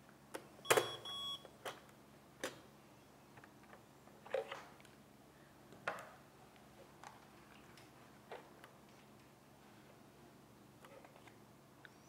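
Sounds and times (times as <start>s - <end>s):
printer beep: 0.6s - 1.5s.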